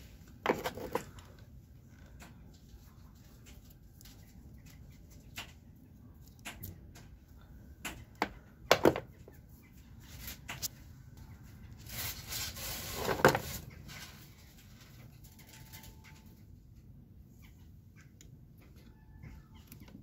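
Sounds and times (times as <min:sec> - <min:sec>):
rustling scrape: 0:11.6 - 0:16.2.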